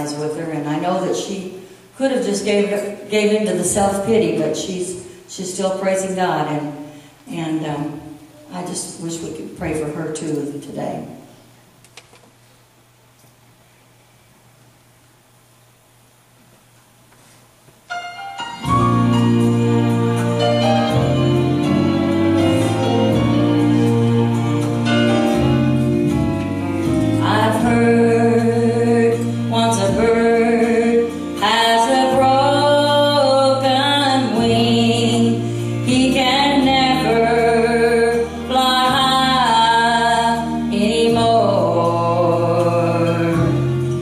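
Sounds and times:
instrumental accompaniment: 17.9 - 44.0
woman singing gospel: 27.2 - 43.8.

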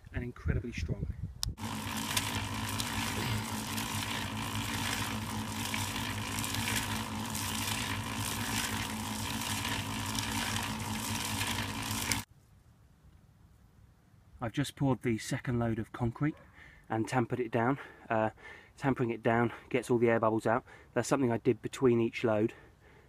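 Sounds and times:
concrete churning in a drum: 1.6 - 12.3
concrete mixer motor hum: 1.6 - 12.3.

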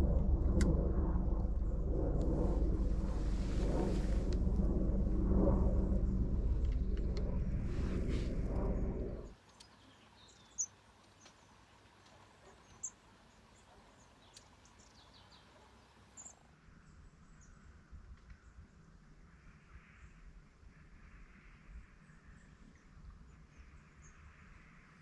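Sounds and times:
loud low rumble: 0.0 - 9.3.

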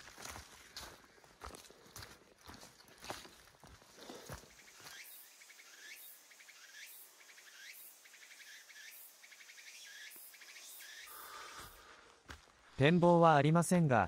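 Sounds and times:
insect call pulsing: 4.0 - 12.0.

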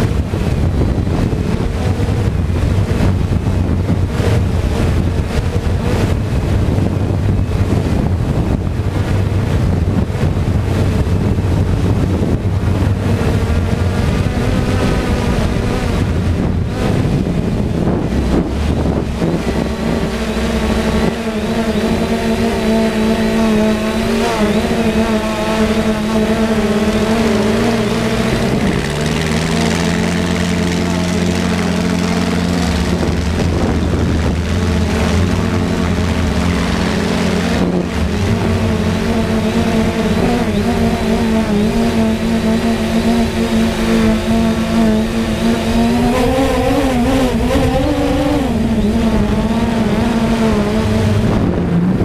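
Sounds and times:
drone propellers whirring: 0.0 - 52.0.

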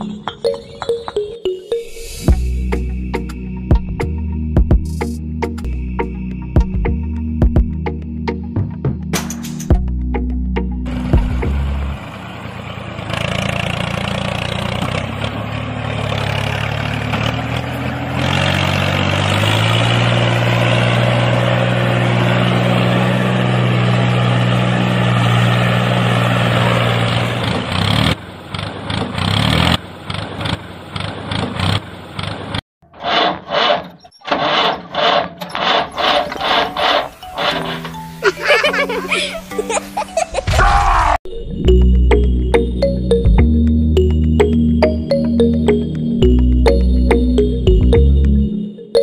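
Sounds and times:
engine humming: 2.3 - 32.6, 33.6 - 40.5, 41.6 - 49.0.

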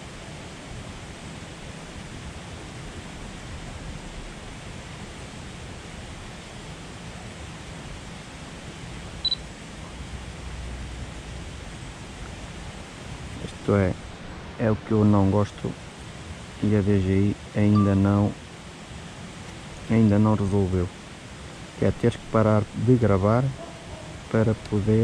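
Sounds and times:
outdoor background hiss: 0.0 - 25.0
short high electronic beep: 17.7 - 18.1.

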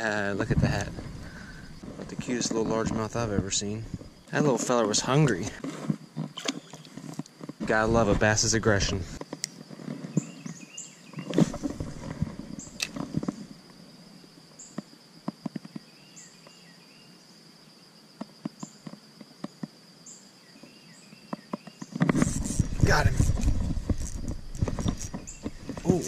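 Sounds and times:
high insect buzz: 0.0 - 26.0
bird chirps: 10.1 - 11.3, 24.6 - 26.0.

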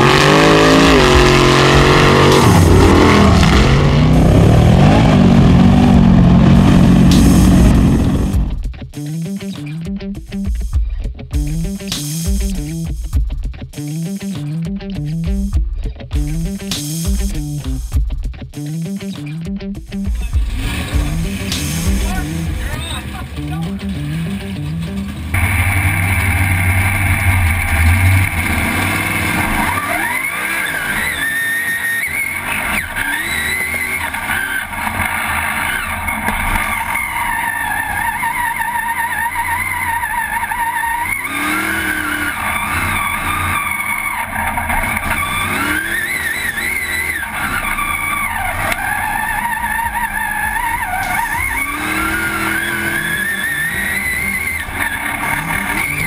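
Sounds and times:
truck engine revving: 0.0 - 8.6, 20.2 - 56.0.

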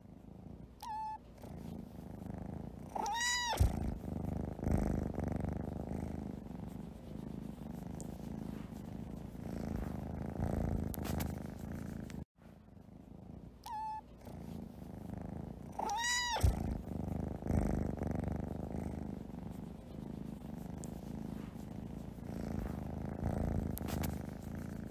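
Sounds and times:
cat purring: 0.0 - 24.9
cat meowing: 2.9 - 3.9, 13.6 - 14.1, 15.8 - 16.8.

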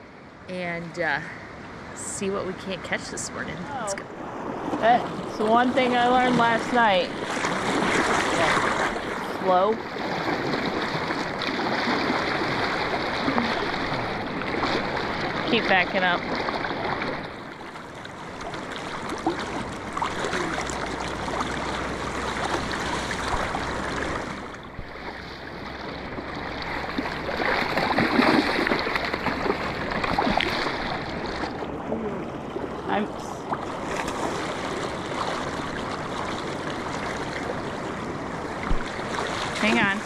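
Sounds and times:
river water flowing: 0.0 - 40.0.

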